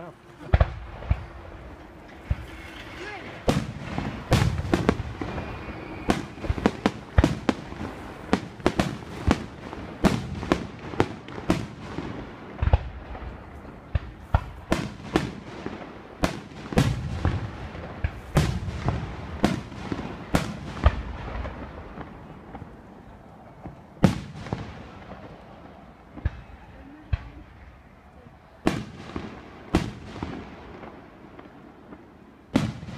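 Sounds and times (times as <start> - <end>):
fireworks bangs with echo: 0.4 - 27.9, 28.6 - 32.9.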